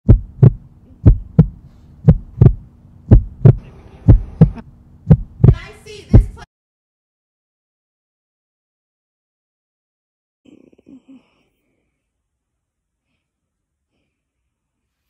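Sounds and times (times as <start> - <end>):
heartbeat double thump: 0.0 - 6.5
faint steady hum: 0.1 - 6.5.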